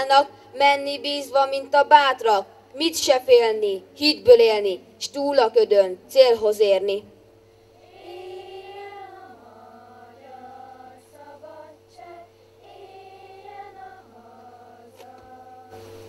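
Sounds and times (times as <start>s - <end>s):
low electrical hum: 0.0s - 16.0s
children's choir singing softly: 7.6s - 16.0s.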